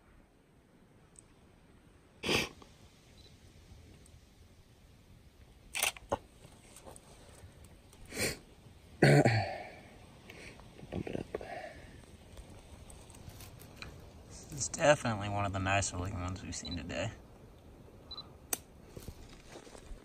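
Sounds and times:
person sneezing: 0:02.2 - 0:02.6
person sniffing: 0:02.2 - 0:02.6, 0:08.1 - 0:08.4.

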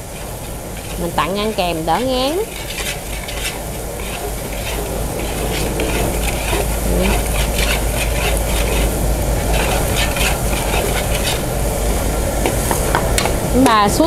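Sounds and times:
garlic sizzling in hot oil: 0:00.0 - 0:14.0.

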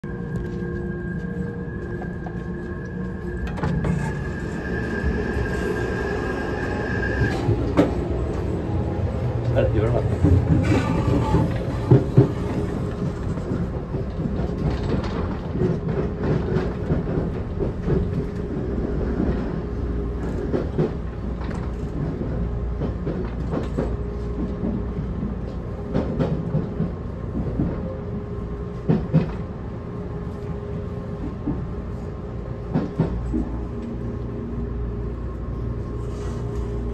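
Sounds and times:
train running rumble: 0:00.0 - 0:36.9.

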